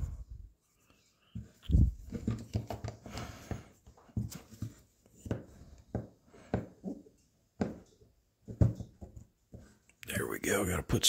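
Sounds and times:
person breathing with effort: 0:03.0 - 0:04.0, 0:05.5 - 0:06.9.

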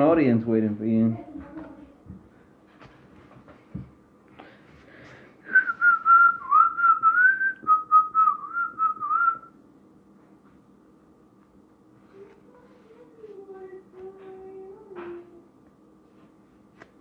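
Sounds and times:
person whistling a tune: 0:05.5 - 0:09.5.

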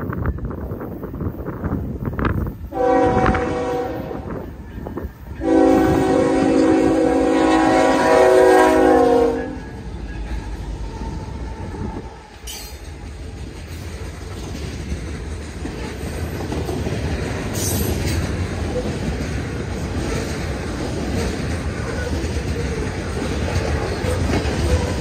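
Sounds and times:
locomotive air horn blast: 0:02.7 - 0:04.4, 0:05.4 - 0:09.8
train wheels clacking over rail joints: 0:12.1 - 0:25.0.

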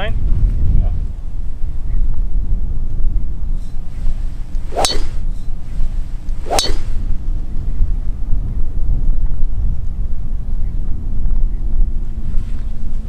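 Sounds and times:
wind rumble on microphone: 0:00.0 - 0:13.0
golf driver striking ball: 0:04.7 - 0:05.3, 0:06.4 - 0:07.0.

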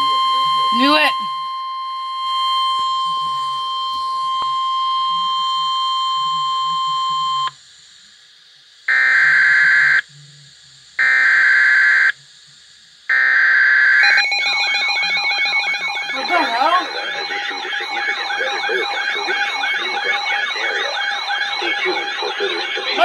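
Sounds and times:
digital alert data bursts: 0:00.0 - 0:07.5, 0:13.1 - 0:23.0
warbling electronic alarm: 0:00.0 - 0:07.6, 0:08.9 - 0:10.0, 0:11.0 - 0:12.2, 0:13.1 - 0:23.0
high attention tone: 0:14.0 - 0:23.0.

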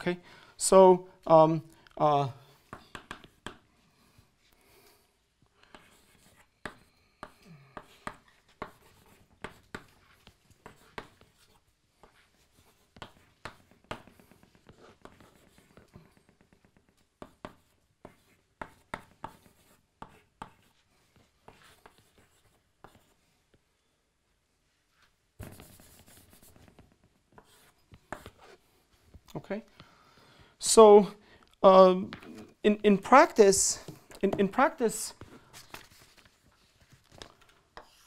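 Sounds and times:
chalk tapping and scratching: 0:02.6 - 0:03.7, 0:05.6 - 0:23.6, 0:25.4 - 0:29.3, 0:33.8 - 0:38.0.

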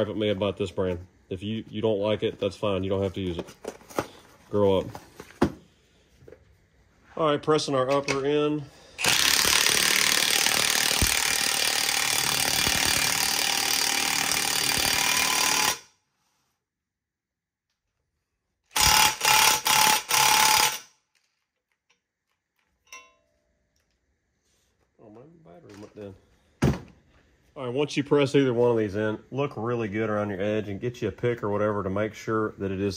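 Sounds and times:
impact wrench hammering: 0:09.0 - 0:15.8, 0:18.7 - 0:20.9.

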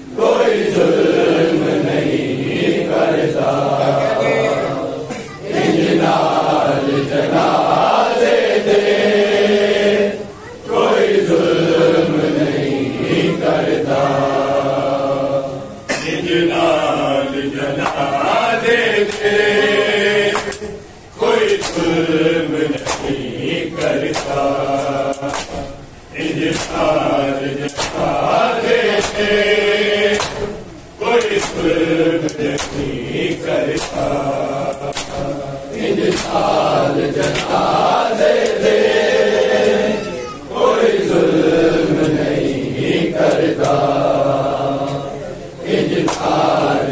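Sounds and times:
men chanting a lament: 0:00.0 - 0:46.9
chest-beating slaps: 0:20.3 - 0:20.7, 0:21.4 - 0:22.0, 0:22.7 - 0:23.2, 0:23.8 - 0:24.5, 0:25.1 - 0:25.8, 0:26.4 - 0:28.2, 0:28.9 - 0:29.4, 0:30.1 - 0:37.7, 0:46.0 - 0:46.4.

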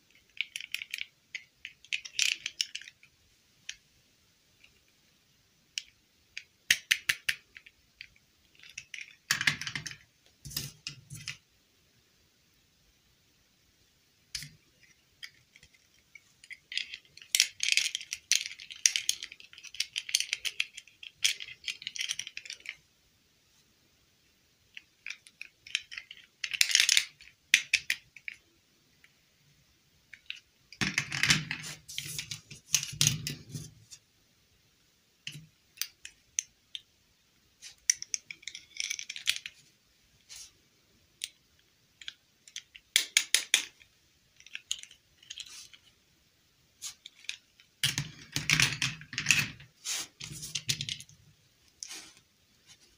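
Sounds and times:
plastic dolls clicking and rustling: 0:00.0 - 0:03.8, 0:05.7 - 0:11.4, 0:14.3 - 0:22.9, 0:24.7 - 0:29.1, 0:30.1 - 0:34.0, 0:35.2 - 0:36.9, 0:37.6 - 0:40.5, 0:41.2 - 0:46.0, 0:46.8 - 0:52.9.

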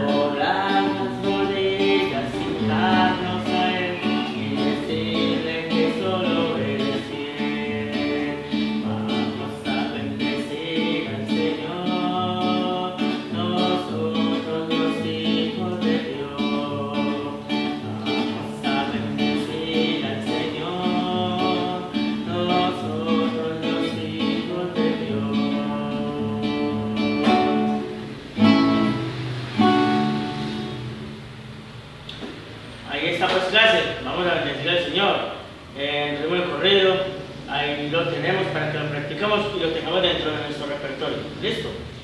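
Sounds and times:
man singing: 0:00.0 - 0:28.0, 0:35.8 - 0:41.6
acoustic guitar strumming: 0:00.0 - 0:42.0.

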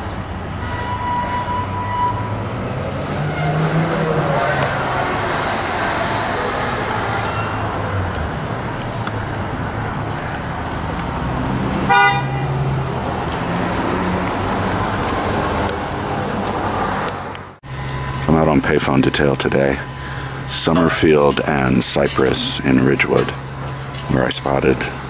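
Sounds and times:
city street traffic: 0:00.0 - 0:25.0
car horn toot: 0:00.6 - 0:02.4, 0:03.0 - 0:05.2, 0:07.0 - 0:07.8, 0:11.8 - 0:12.6.

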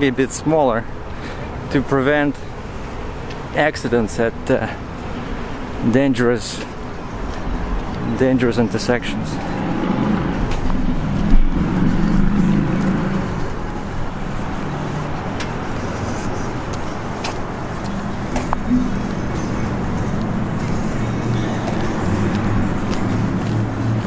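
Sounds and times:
road traffic: 0:00.0 - 0:24.0
car engines running: 0:06.5 - 0:24.0.

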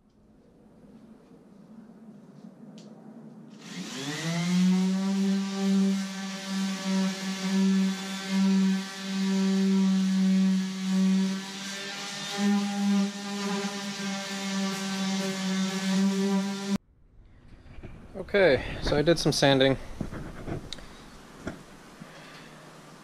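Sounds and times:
electric orbital sander running: 0:03.6 - 0:16.8.

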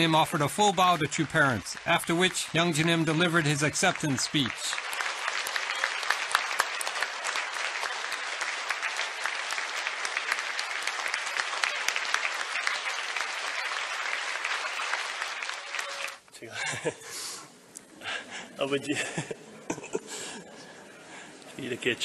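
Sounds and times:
large audience applauding: 0:00.0 - 0:16.2.

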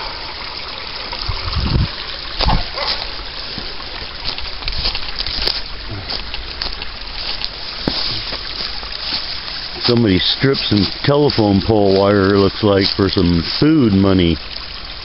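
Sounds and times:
creek trickling over rocks: 0:00.0 - 0:15.0
footsteps: 0:02.4 - 0:13.6
rustling through ferns: 0:02.4 - 0:13.7.

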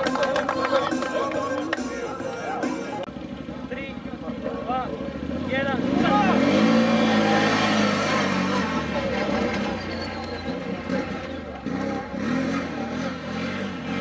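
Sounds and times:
quad bike engine at full throttle: 0:03.1 - 0:14.0.

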